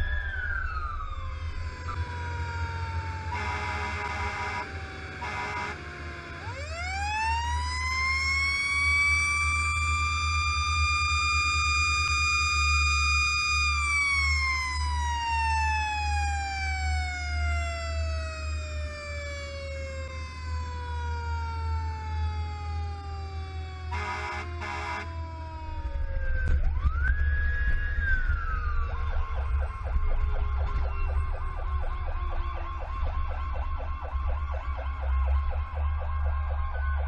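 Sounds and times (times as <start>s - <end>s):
fire engine rumble: 0.0s - 37.0s
mechanical siren wailing: 0.0s - 37.0s
air horn blasts: 3.3s - 5.9s, 23.9s - 25.2s.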